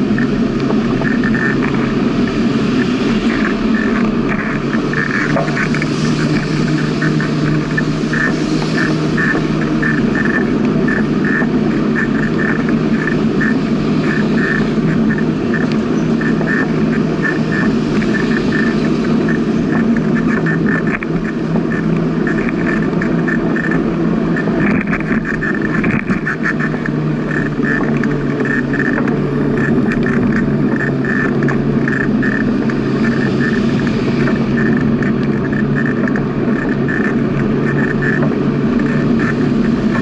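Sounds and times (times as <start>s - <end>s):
bicycle tyres rolling on asphalt: 0.0s - 40.0s
wind: 0.0s - 40.0s
fast uneven rattle: 0.1s - 40.0s.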